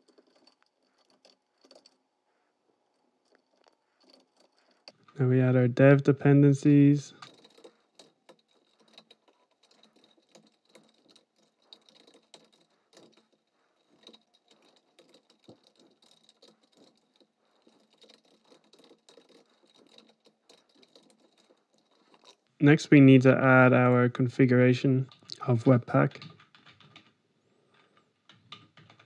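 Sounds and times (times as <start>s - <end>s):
typing on computer keyboard: 7.1s - 22.4s, 25.1s - 29.0s.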